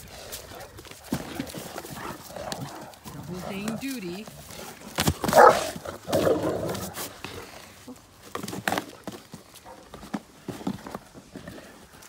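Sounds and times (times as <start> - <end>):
dogs chewing cardboard box: 0.0 - 12.0
dog footfalls on grass: 0.4 - 7.2.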